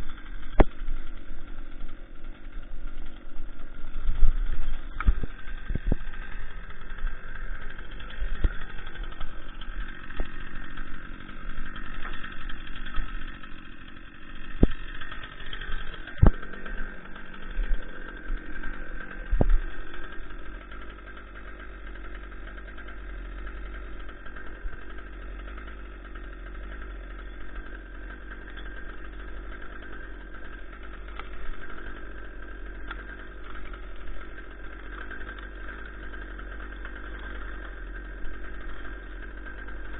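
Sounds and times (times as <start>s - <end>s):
sharp cracks and knocks: 0.0s - 1.7s, 4.0s - 7.1s, 7.7s - 10.9s, 11.6s - 13.8s, 14.4s - 16.8s, 17.4s - 26.8s, 27.5s - 39.9s
engine idling: 0.0s - 39.9s.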